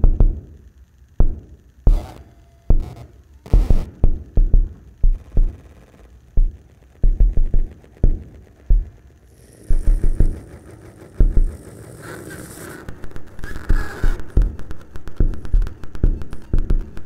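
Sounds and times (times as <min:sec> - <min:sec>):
high hiss: 0:00.0 - 0:17.0
deep electronic thumps: 0:01.2 - 0:02.1, 0:02.7 - 0:05.7, 0:06.3 - 0:11.8, 0:12.9 - 0:17.0.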